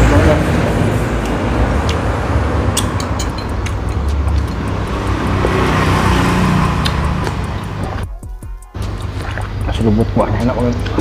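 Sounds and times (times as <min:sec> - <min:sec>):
low rumble of road traffic: 0:00.0 - 0:08.0
metal spoon clinking porcelain bowl: 0:02.8 - 0:03.8.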